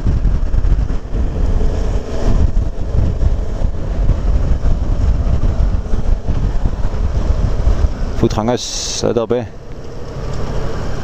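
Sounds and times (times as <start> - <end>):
motorcycle engine running: 0.0 - 8.8
wind rushing over microphone: 0.0 - 11.0.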